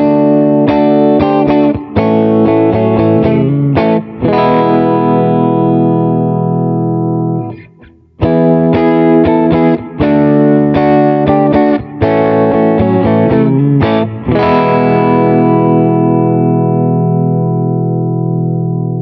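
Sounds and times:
distorted electric guitar chord riff: 0:00.0 - 0:19.0.

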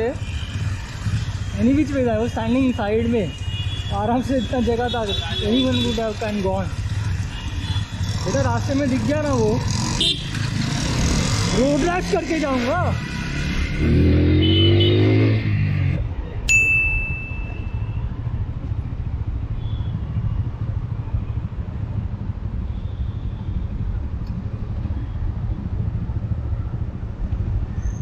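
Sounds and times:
motorcycle engine rumbling: 0:00.0 - 0:28.0
bright ding: 0:16.5 - 0:17.9.

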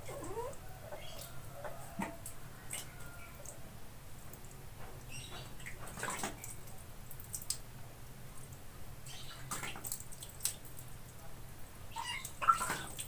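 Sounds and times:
water splashing in plastic basin: 0:05.3 - 0:07.7, 0:09.1 - 0:10.9, 0:12.0 - 0:13.0.

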